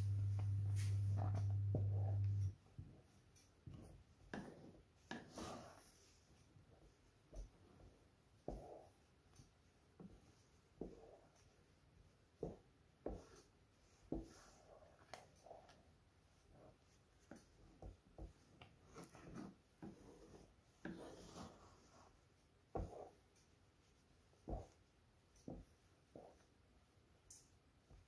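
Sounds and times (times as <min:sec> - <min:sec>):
wooden spoon scraping metal pan: 0:18.8 - 0:22.0.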